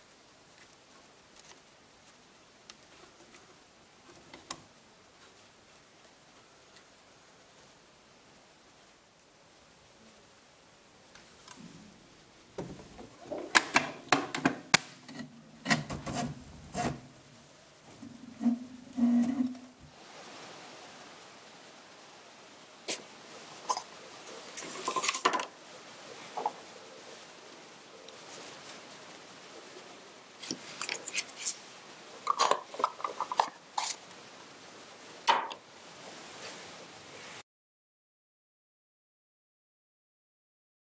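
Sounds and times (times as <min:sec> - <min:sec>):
plastic cover rubbing and clicking: 0:13.2 - 0:17.2, 0:30.4 - 0:31.6, 0:32.3 - 0:34.0.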